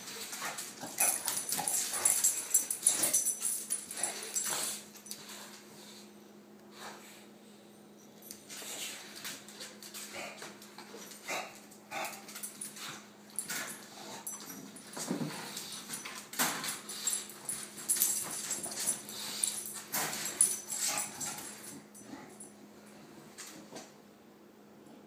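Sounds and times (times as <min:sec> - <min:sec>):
dogs whining and grunting: 0:00.0 - 0:05.2.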